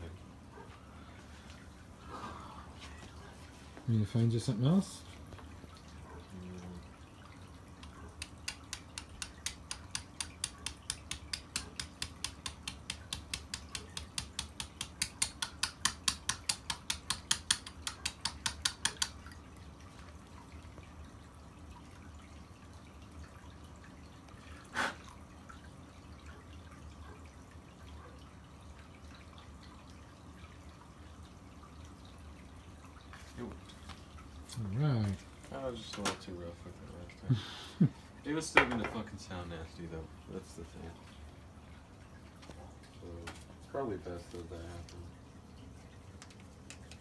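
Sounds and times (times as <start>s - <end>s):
hammer tapping steel punch: 8.5s - 19.1s.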